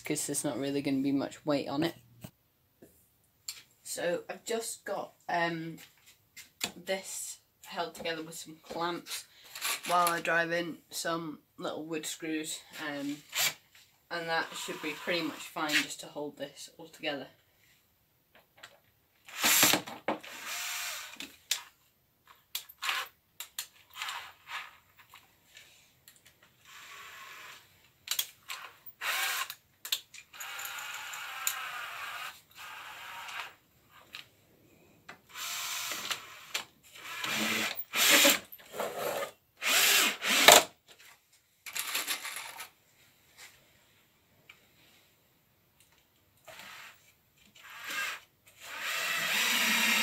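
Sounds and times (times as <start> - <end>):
cordless drill driving screws: 14.4 - 15.4, 19.3 - 21.7, 22.8 - 23.1, 26.6 - 27.7, 28.5 - 29.6, 30.3 - 33.6, 35.3 - 40.7, 47.6 - 50.0.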